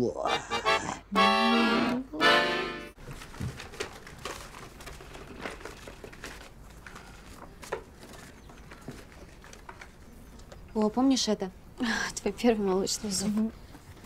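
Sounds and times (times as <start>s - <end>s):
accordion chord: 0.3s - 3.0s
paper rustling and clicking: 3.0s - 10.9s.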